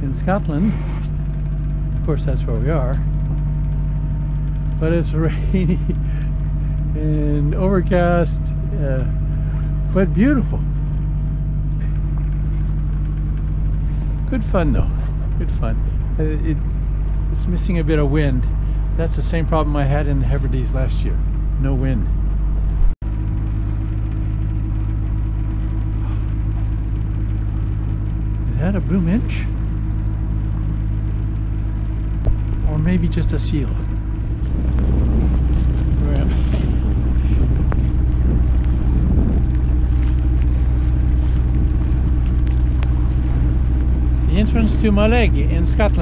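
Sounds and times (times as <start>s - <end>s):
diesel engine droning: 0.0s - 46.0s
wind on microphone: 22.7s - 46.0s.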